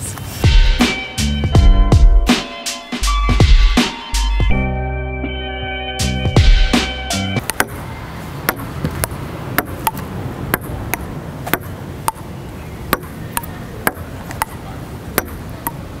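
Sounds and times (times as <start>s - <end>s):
outdoor background hiss: 0.0s - 1.6s, 6.8s - 16.0s
table tennis ball clicking: 15.2s - 15.8s.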